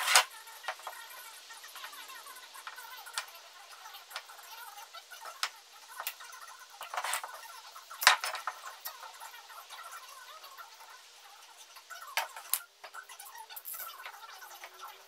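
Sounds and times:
wood pieces clicking and knocking: 0.0s - 0.9s, 6.8s - 7.3s, 8.0s - 8.6s.

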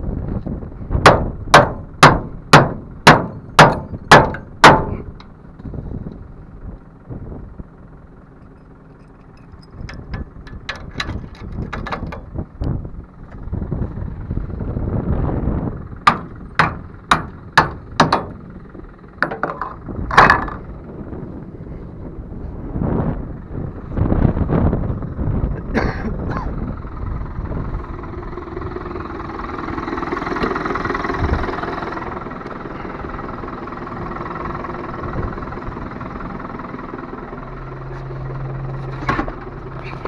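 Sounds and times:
hammer strikes on metal: 1.0s - 5.1s, 16.1s - 18.4s.

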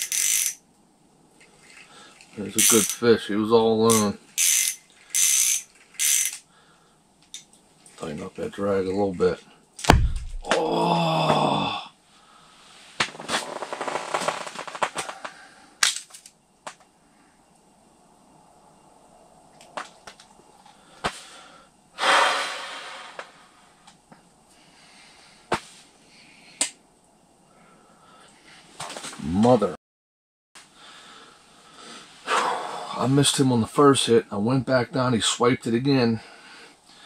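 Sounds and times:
fishing reel clicking: 0.0s - 0.6s, 2.6s - 3.0s, 3.9s - 6.4s
breathy rush of noise: 20.8s - 23.8s, 30.7s - 33.1s.

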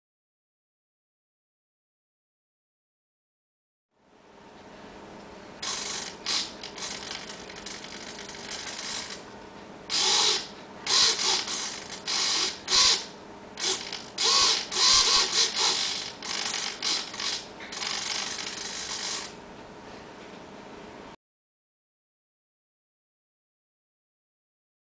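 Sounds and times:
servo motor whirring: 5.6s - 9.2s, 9.9s - 19.3s.

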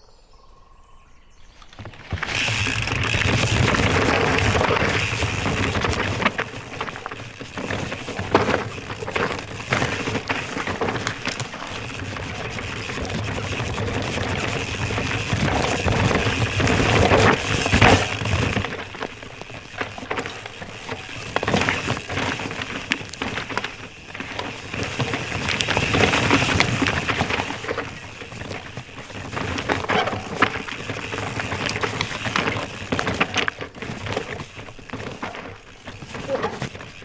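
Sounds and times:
bike rattles and clicks: 1.5s - 37.0s
tyres crunching on dirt: 1.6s - 37.0s.

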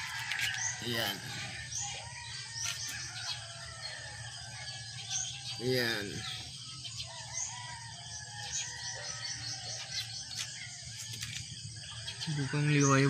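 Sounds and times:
faint rooster crowing: 0.0s - 4.9s, 12.1s - 13.0s
small birds chirping: 0.0s - 13.0s.

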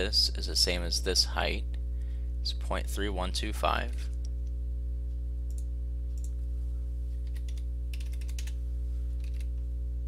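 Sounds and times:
electrical hum: 0.0s - 10.0s
keyboard and mouse clicks: 7.2s - 8.6s, 9.2s - 9.5s.

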